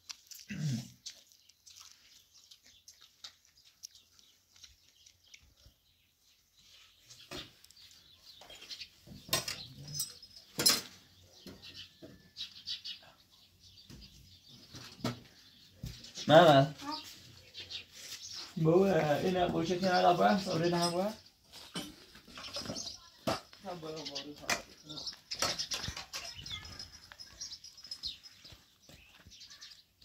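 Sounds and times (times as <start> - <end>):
people biting corn kernels: 0.0 - 6.0.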